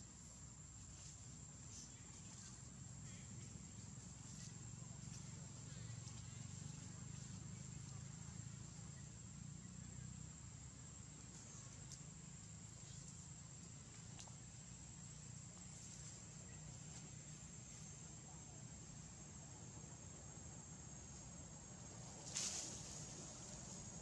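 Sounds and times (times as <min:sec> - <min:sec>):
faint ticks: 0:11.3 - 0:14.7.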